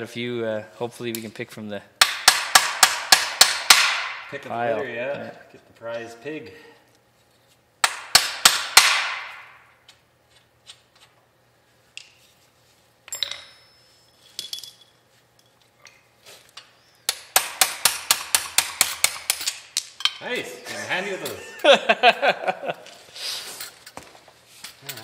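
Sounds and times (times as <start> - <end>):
steel tools clinking: 13.1 - 15.7.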